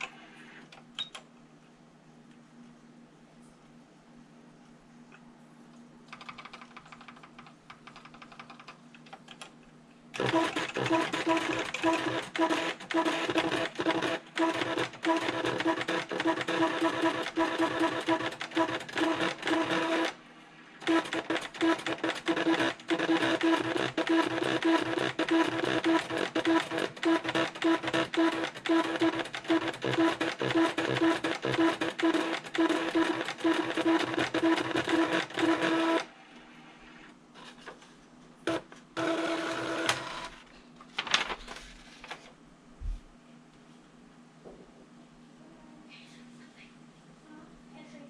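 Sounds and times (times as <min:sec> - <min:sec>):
paper rustling: 0:40.9 - 0:42.3.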